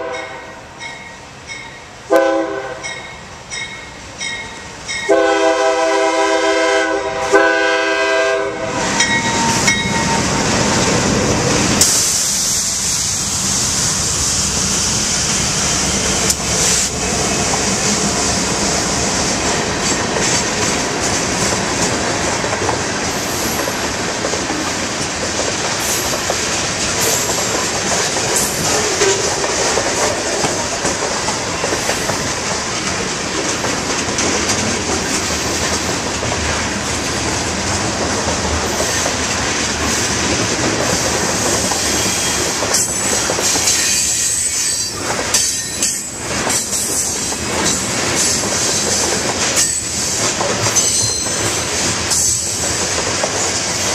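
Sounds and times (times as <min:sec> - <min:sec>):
train wheels rumbling on rails: 0:00.0 - 0:53.9
high wheel hiss: 0:08.9 - 0:20.8
wheels clicking over rail joints: 0:15.8 - 0:53.9.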